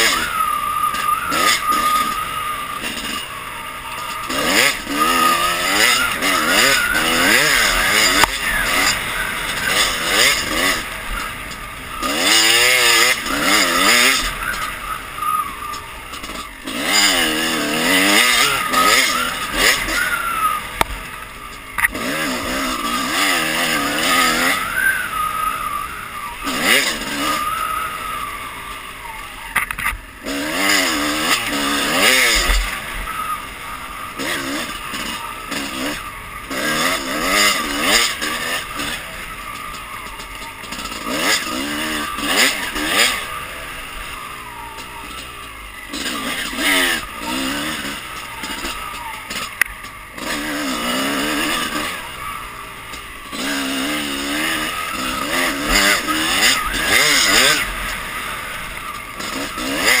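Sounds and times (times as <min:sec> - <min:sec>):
dirt bike engine revving: 0:00.0 - 1:00.0
noisy rush: 0:00.0 - 1:00.0.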